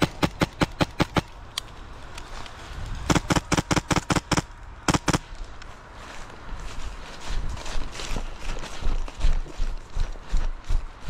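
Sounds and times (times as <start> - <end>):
airsoft rifle firing: 0.0 - 1.3, 3.1 - 5.2.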